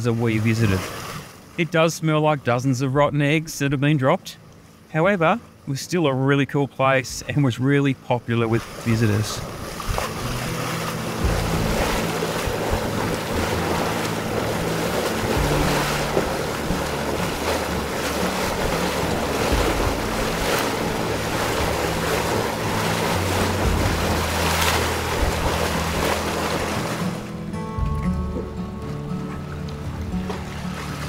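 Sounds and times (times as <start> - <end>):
low rumbling: 8.7 - 31.0.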